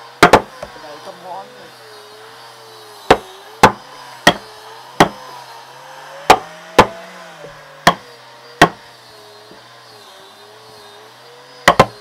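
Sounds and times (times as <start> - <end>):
hand tool striking wood: 0.2 - 0.8, 3.1 - 5.2, 6.3 - 7.0, 7.8 - 8.8, 11.6 - 12.0.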